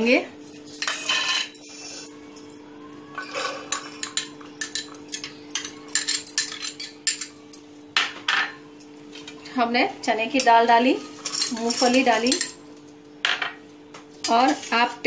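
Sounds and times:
spoon scraping steel: 0.6s - 2.2s, 11.0s - 12.6s
steel spoon clinking bowls: 3.1s - 8.6s, 10.4s - 14.8s.

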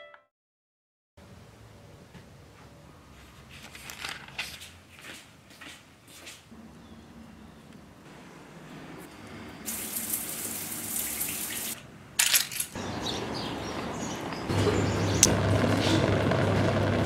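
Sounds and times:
water running from tap: 9.7s - 11.8s.

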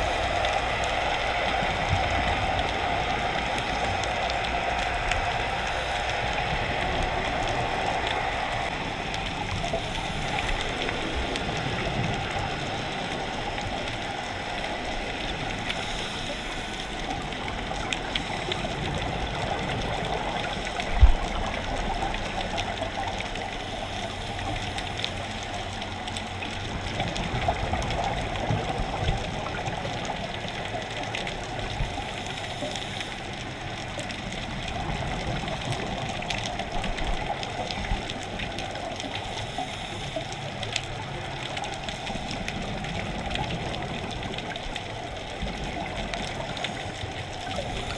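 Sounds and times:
muffled underwater water rush: 0.0s - 47.9s
scuba diver's bubbles: 33.9s - 47.9s.

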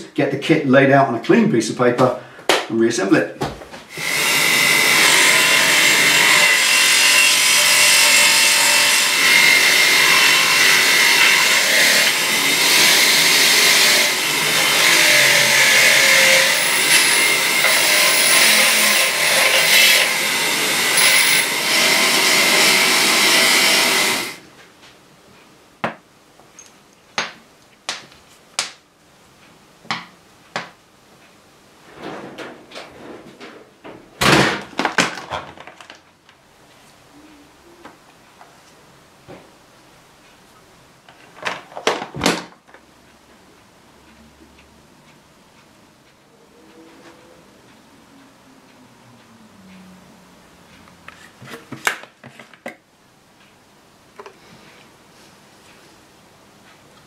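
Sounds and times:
bench grinder grinding metal: 3.9s - 24.4s.

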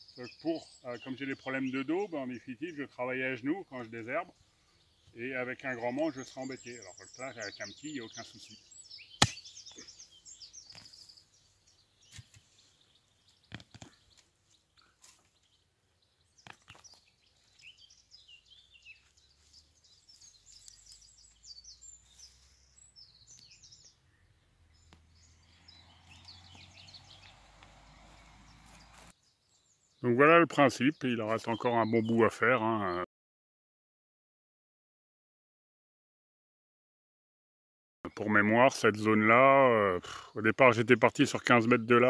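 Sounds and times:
small birds chirping: 0.0s - 33.1s, 38.1s - 42.0s
pick striking dry soil: 9.2s - 9.9s, 10.6s - 11.0s, 12.0s - 12.5s.

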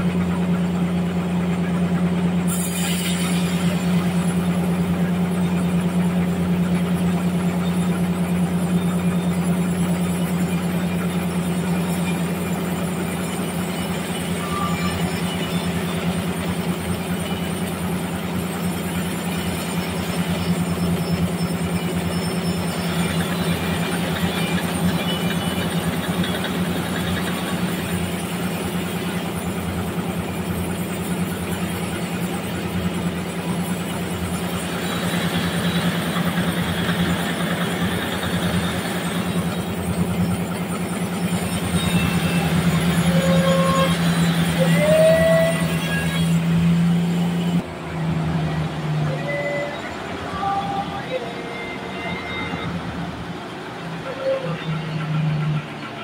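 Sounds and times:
band sawmill humming: 0.0s - 56.0s
saw blade hissing through wood: 2.5s - 4.4s.

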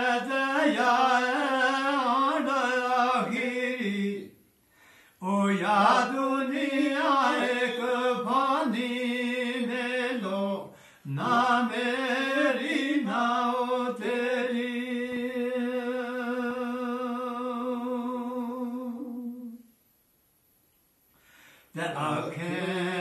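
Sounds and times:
man chanting: 21.8s - 23.0s.

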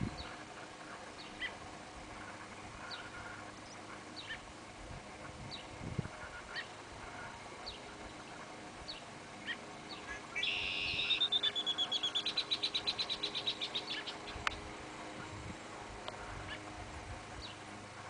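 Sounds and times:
small bird chirping and trilling: 8.9s - 14.6s.

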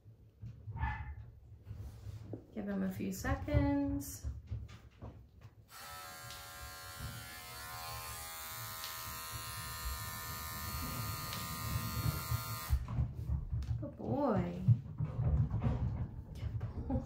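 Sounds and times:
electric hair clippers buzzing: 5.7s - 12.8s.

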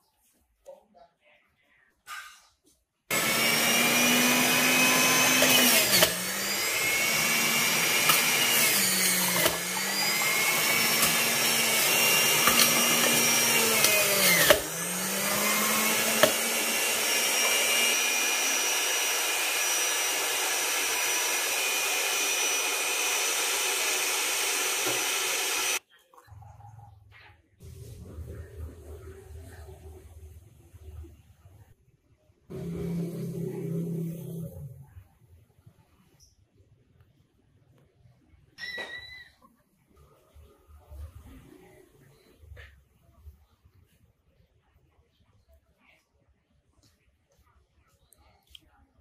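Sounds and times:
blender motor whine: 3.1s - 25.8s, 32.5s - 34.8s.

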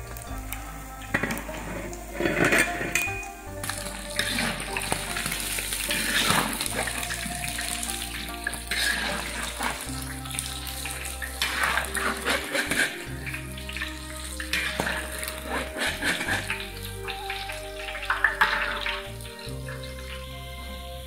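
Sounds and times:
fish sizzling in hot oil: 0.0s - 20.0s
ladle scraping and clinking on wok: 1.0s - 19.1s.

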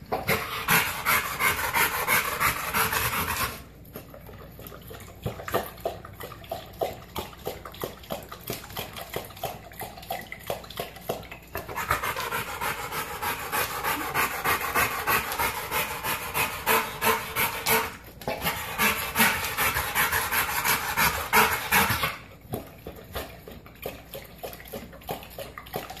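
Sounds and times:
dog lapping water from bowl: 0.0s - 26.0s
dog panting: 0.1s - 4.2s, 11.6s - 22.2s.

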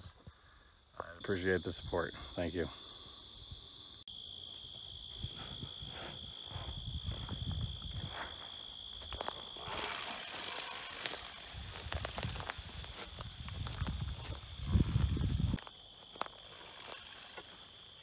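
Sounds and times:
insects droning: 0.0s - 18.0s
footsteps rustling through plants: 4.4s - 18.0s.

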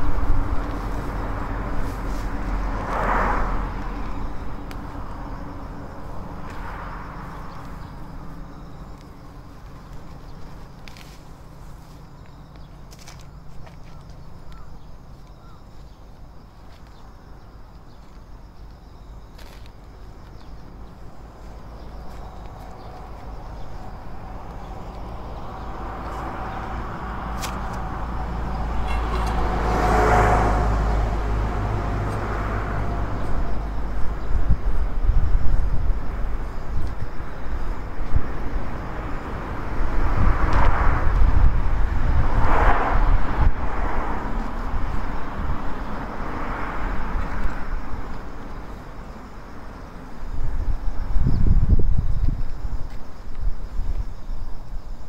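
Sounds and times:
vehicle passing by: 0.0s - 9.7s, 21.1s - 49.0s
wind rumble on microphone: 0.0s - 55.0s.

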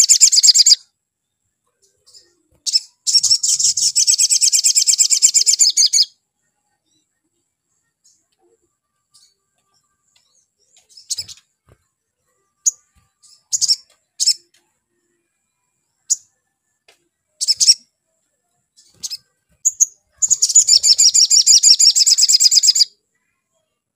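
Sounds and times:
bird high chirps: 0.0s - 0.9s, 1.7s - 6.2s, 7.8s - 11.5s, 12.4s - 14.6s, 17.4s - 18.0s, 18.7s - 23.0s
bird fast high trill: 19.7s - 22.9s.

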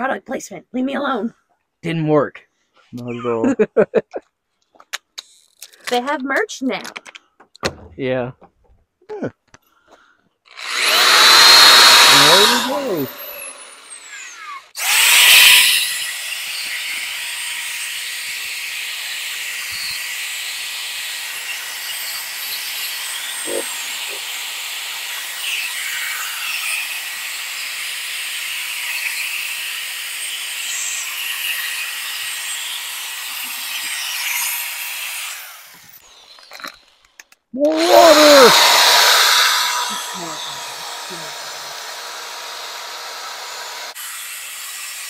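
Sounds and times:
electric drill motor whine: 10.5s - 27.8s, 37.7s - 45.0s.

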